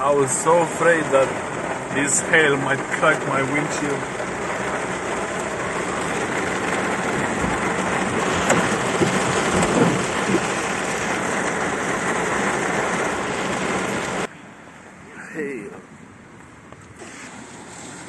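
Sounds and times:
hail and rain on car roof: 0.2 - 14.3.

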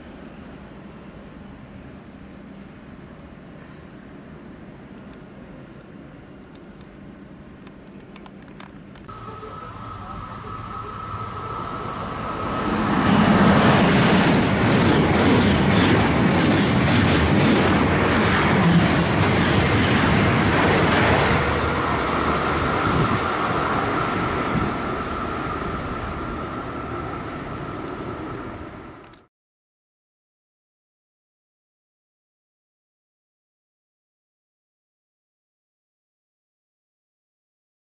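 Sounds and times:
train passing at speed: 0.0 - 7.2, 9.1 - 29.1
steady high whine: 8.9 - 29.2.

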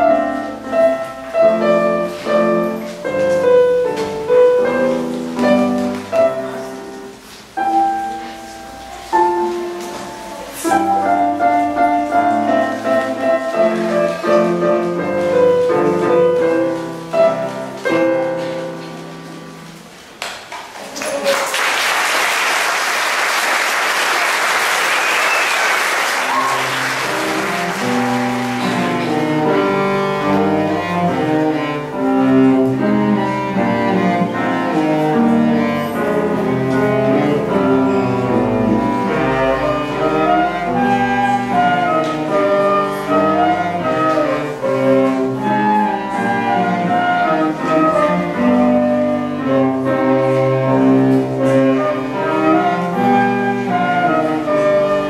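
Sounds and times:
violins cello and piano ensemble: 0.0 - 20.0, 26.0 - 55.0
audience applause: 20.7 - 29.0.

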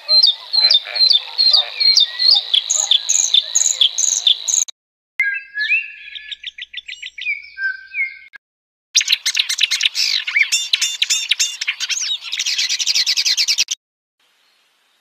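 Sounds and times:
warbler harsh chattering song: 0.0 - 4.7, 9.0 - 13.8
bird song with sharp repeated notes: 0.0 - 8.4, 9.0 - 13.8
songbird whistled notes: 1.5 - 8.4.

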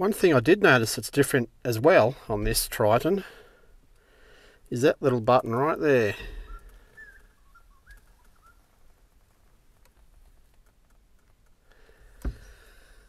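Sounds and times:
faint clicks and handling noises: 6.6 - 12.5.

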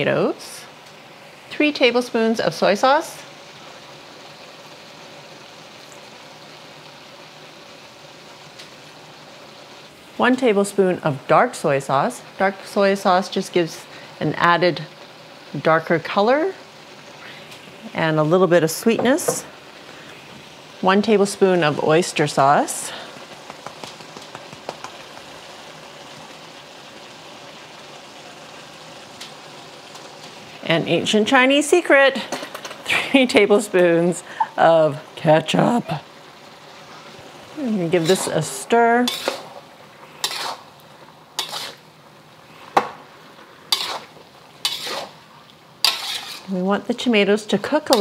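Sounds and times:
food sizzling in a hot pan: 0.0 - 48.0
utensil scraping a pan: 37.9 - 41.9, 43.4 - 46.6.

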